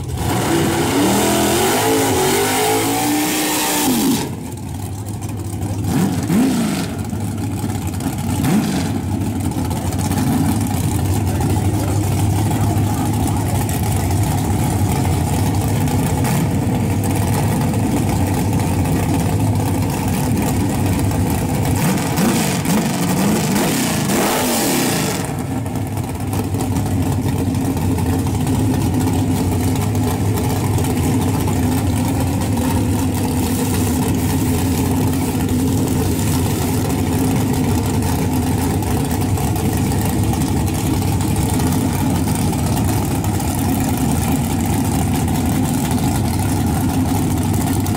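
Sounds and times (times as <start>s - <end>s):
car engine idling loudly: 0.0s - 47.9s.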